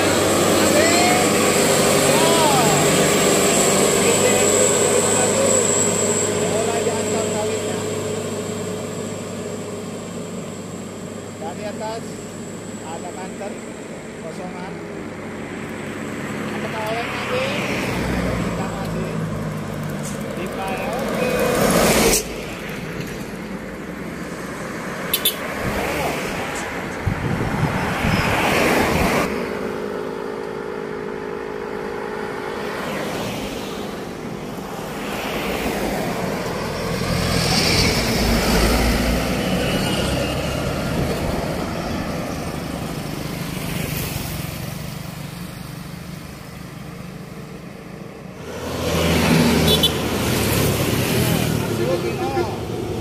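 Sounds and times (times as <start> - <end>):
cars and trucks driving past: 0.0 - 53.0
steady engine hum: 0.0 - 53.0.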